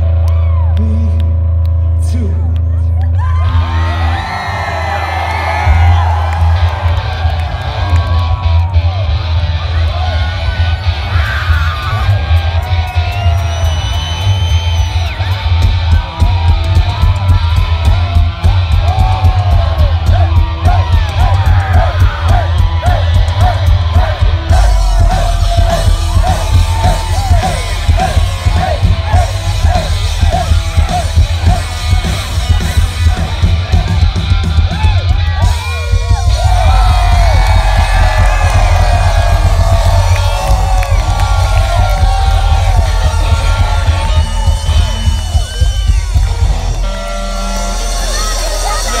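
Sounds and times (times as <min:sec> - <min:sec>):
crowd yelling and singing along: 0:02.1 - 0:49.0
live rock band playing: 0:03.3 - 0:49.0.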